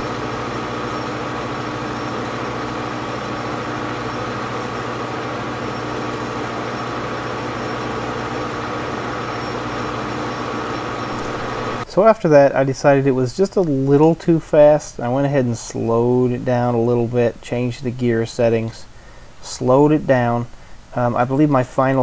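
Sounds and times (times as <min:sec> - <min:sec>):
metal lathe humming with whine: 0:00.0 - 0:11.8.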